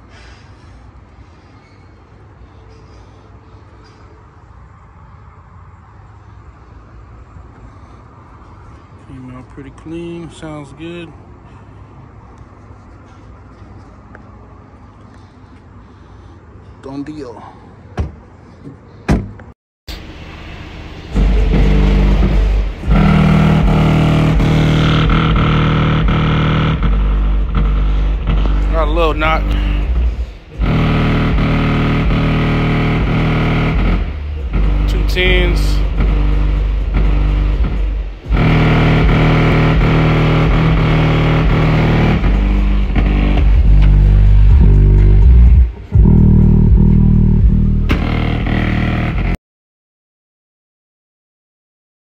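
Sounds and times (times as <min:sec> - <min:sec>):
thump: 0:18.0 - 0:19.5
bass-heavy music through subwoofers: 0:19.9 - 0:49.4.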